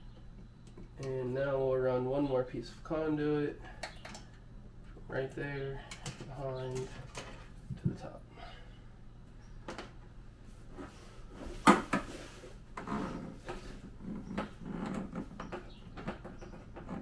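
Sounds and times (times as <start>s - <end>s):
plastic conduit rustling and scraping: 5.8s - 8.1s.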